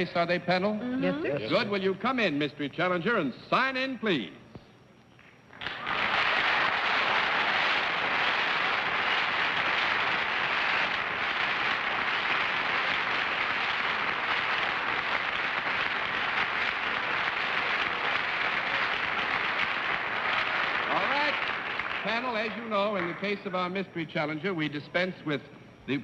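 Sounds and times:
audience applauding: 5.5 - 23.8.

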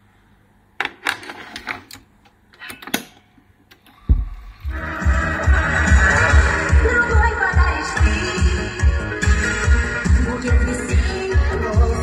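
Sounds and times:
music with low beat: 4.1 - 12.0.

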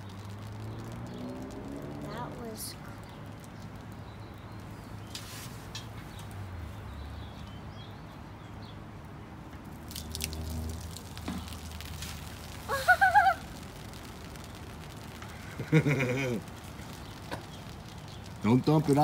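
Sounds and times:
foam dripping and fizzing: 0.0 - 19.0
child squealing: 12.7 - 13.4.

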